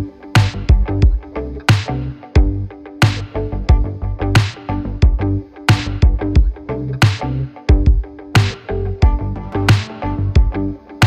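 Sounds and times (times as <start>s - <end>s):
electronic music: 0.0s - 11.0s.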